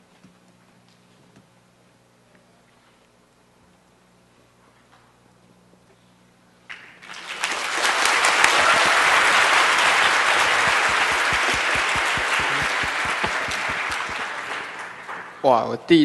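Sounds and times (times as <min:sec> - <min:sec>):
audience applauding: 0:06.7 - 0:15.7.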